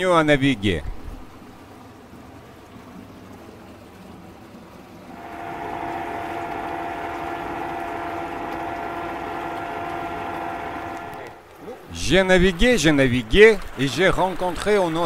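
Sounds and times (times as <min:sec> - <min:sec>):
propeller water wash: 0:01.2 - 0:15.0
electric outboard motor whine: 0:05.1 - 0:11.6.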